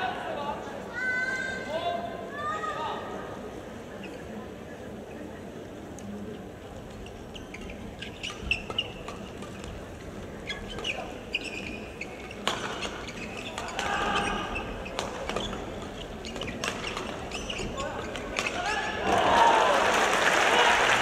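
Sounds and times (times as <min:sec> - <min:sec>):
court shoes squeaking on floor: 0:03.9 - 0:05.4, 0:06.7 - 0:19.1
rackets hitting shuttlecock: 0:12.3 - 0:14.3, 0:16.3 - 0:17.4.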